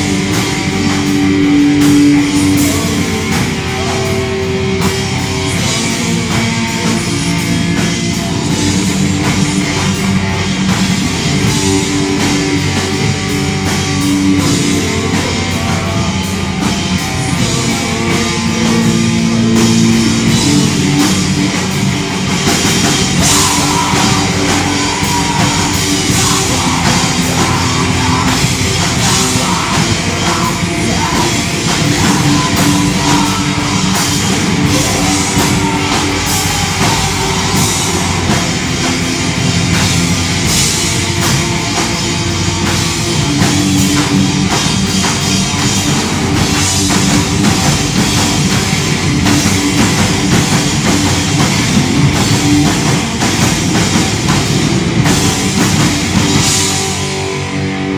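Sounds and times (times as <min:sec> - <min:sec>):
live metal band playing: 0:00.0 - 0:57.9.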